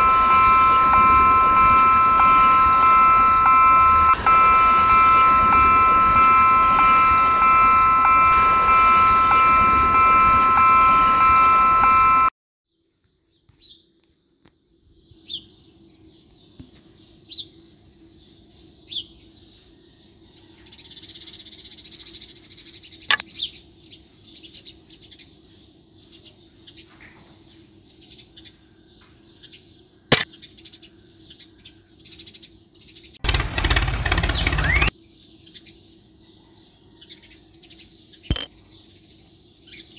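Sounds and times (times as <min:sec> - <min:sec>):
pulsing high tone chord: 0:00.0 - 0:12.3
small birds chirping: 0:12.7 - 0:33.2, 0:34.1 - 0:39.9
sharp clicks: 0:33.2 - 0:34.9.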